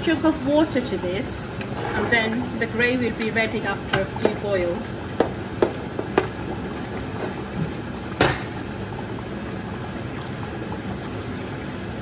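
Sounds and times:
water pouring into pot: 0:06.3 - 0:12.0.

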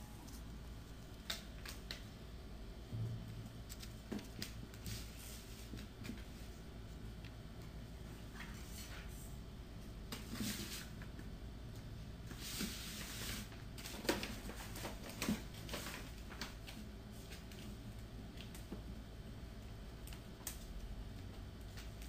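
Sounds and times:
low steady hum: 0:00.0 - 0:22.0
paper rustling and tapping: 0:01.2 - 0:02.1, 0:03.6 - 0:06.5, 0:12.5 - 0:19.0.

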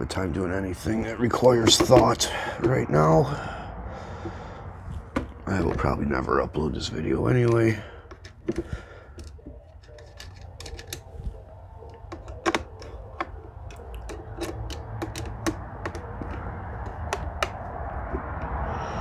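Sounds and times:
hex key clicking on metal: 0:09.2 - 0:17.6.

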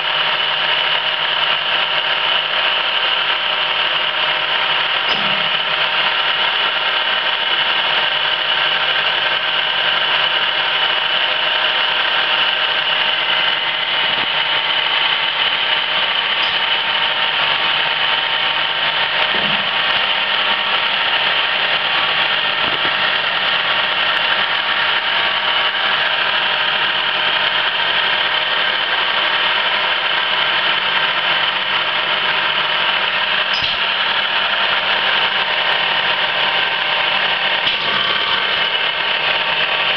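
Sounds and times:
high machine whine: 0:00.0 - 0:39.9
lathe running: 0:00.0 - 0:39.9.

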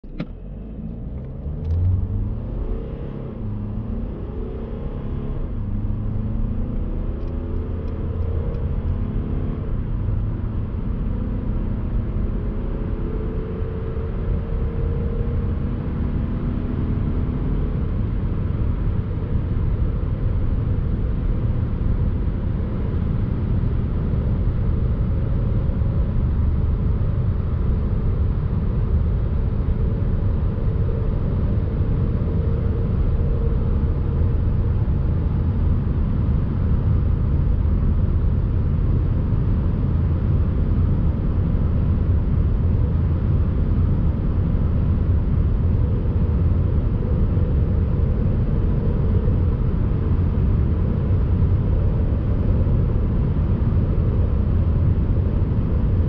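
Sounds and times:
car engine accelerating: 0:00.0 - 0:56.0
wind and tyre noise: 0:00.0 - 0:56.0.

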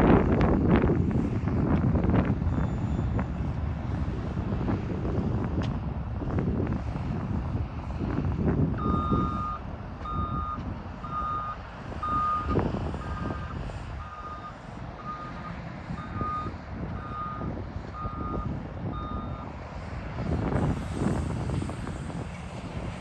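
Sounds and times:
diesel engine running: 0:00.0 - 0:23.0
reversing alarm beeping: 0:08.8 - 0:19.5.

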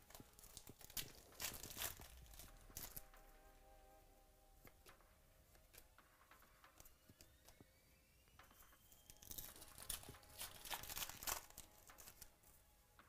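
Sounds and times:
foil wrapper crinkling and tearing: 0:00.0 - 0:03.2, 0:09.0 - 0:12.4.

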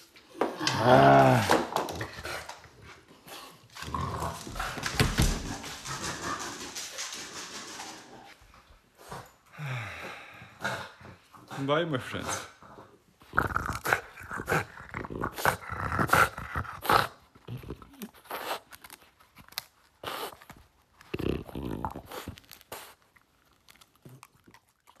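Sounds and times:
dog chewing wooden stick: 0:13.3 - 0:25.0.

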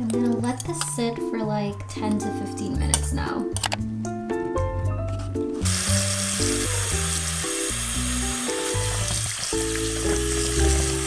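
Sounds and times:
background music: 0:00.0 - 0:11.0
water splashing in metal bowl: 0:05.6 - 0:11.0.

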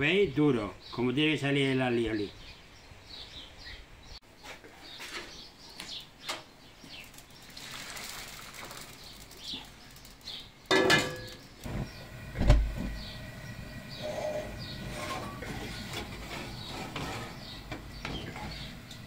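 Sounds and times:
hot liquid pouring: 0:07.0 - 0:11.7
metal pot clanging on pan: 0:10.7 - 0:11.4.

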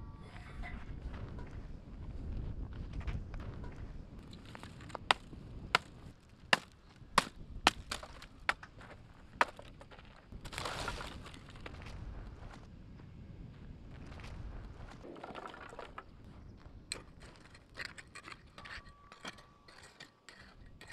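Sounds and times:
dry sticks rustling and clattering: 0:04.2 - 0:11.7, 0:16.9 - 0:20.9
hatchet chopping dry branches: 0:04.4 - 0:11.2.

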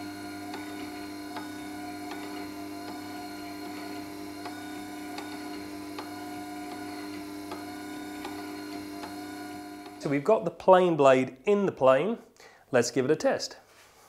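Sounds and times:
stone grinder humming: 0:00.0 - 0:10.3.

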